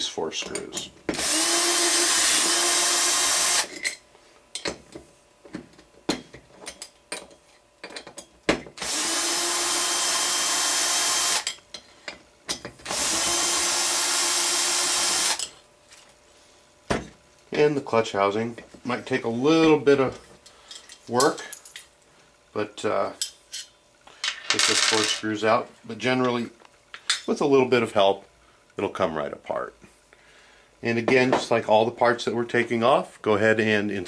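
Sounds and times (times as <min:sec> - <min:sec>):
cordless drill motor whine: 0:01.2 - 0:03.7, 0:08.8 - 0:11.5, 0:12.9 - 0:15.5.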